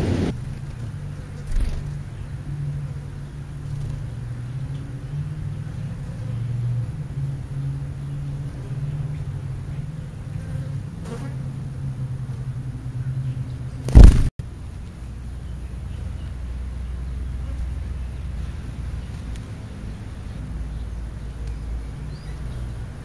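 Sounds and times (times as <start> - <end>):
loud knock: 13.9 - 14.3.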